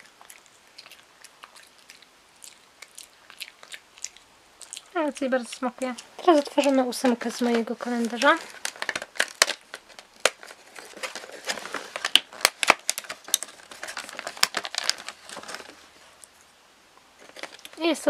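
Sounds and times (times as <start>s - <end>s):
plastic tray crinkling: 5.8s - 16.0s, 17.2s - 18.0s
cardboard tearing: 7.4s - 15.8s.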